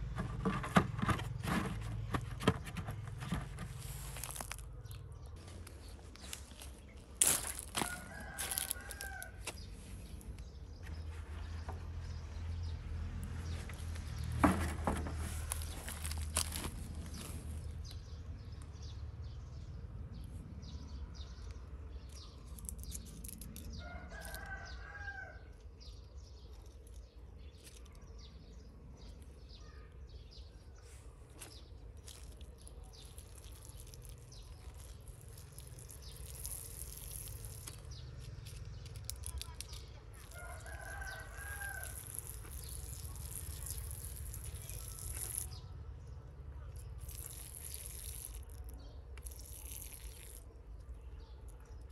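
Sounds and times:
rooster crowing: 7.8s - 9.4s, 40.3s - 42.0s.

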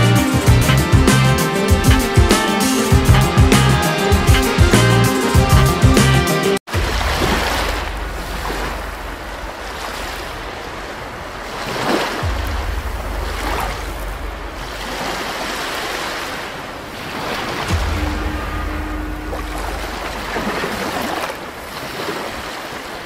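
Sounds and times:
rushing water: 0.0s - 23.0s
low rumble: 6.7s - 11.6s, 12.2s - 16.0s, 17.6s - 21.8s.

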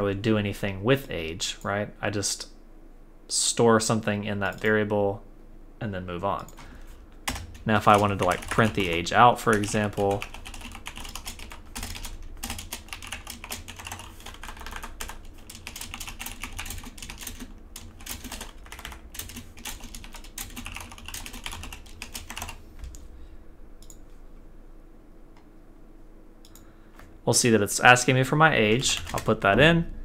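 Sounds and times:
computer keyboard typing: 7.3s - 23.0s, 28.7s - 29.6s.

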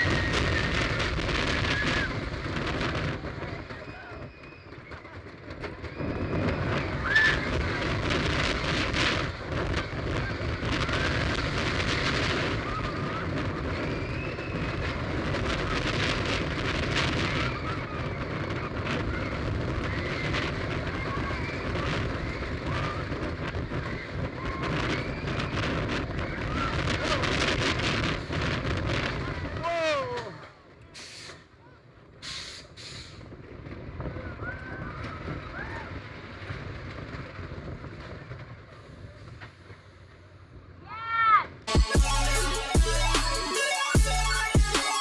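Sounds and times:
riders screaming: 0.0s - 2.4s, 5.8s - 8.0s, 17.0s - 27.3s, 29.1s - 30.5s, 34.2s - 36.1s, 40.8s - 41.6s
wind buffeting microphone: 0.0s - 30.4s, 33.1s - 39.8s
roller coaster rattling on track: 0.0s - 41.6s.

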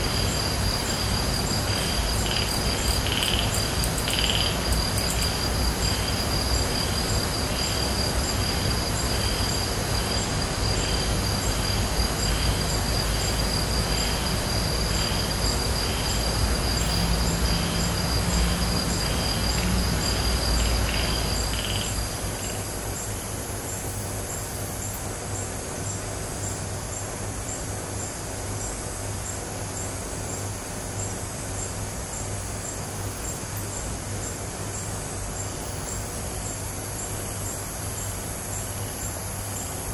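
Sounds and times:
insect high trill: 0.0s - 25.0s
insect chirping: 0.0s - 39.9s
steady low hum: 0.0s - 39.9s.

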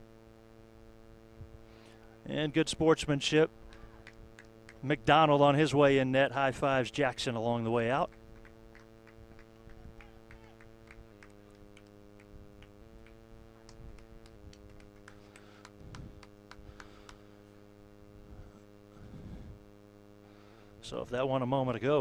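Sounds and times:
faint electrical hum: 0.0s - 22.0s
faint ticks and clicks: 3.6s - 4.9s, 8.0s - 17.2s.

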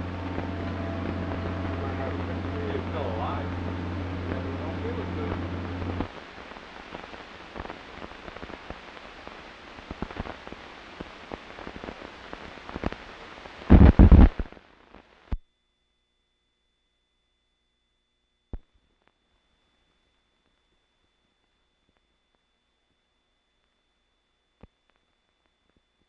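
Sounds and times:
loud bursts: 0.0s - 6.1s
film soundtrack crackle and hiss: 0.0s - 15.5s, 18.4s - 26.0s.

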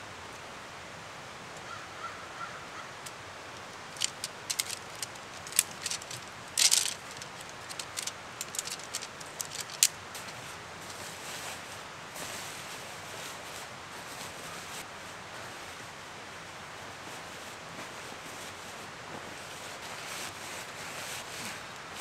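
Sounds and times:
steady background hiss: 0.0s - 22.0s
tent parts clicking and clacking: 3.0s - 11.1s
nylon tent rustling: 3.6s - 14.8s.

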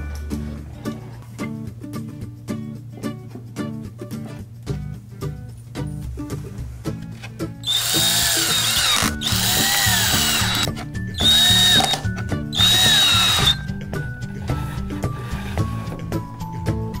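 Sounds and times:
background music with bass: 0.0s - 17.0s
cordless drill driving screws: 7.7s - 13.6s.

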